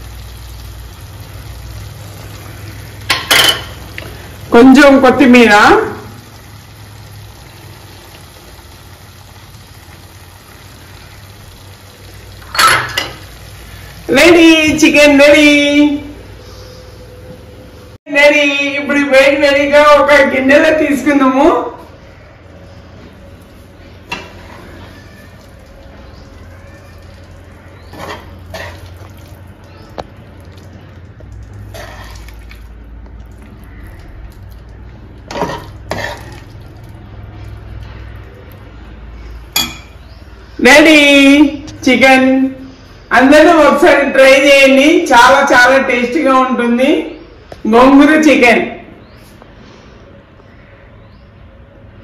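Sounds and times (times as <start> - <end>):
curry simmering in pan: 0.0 - 4.6, 5.7 - 14.1, 22.6 - 40.4.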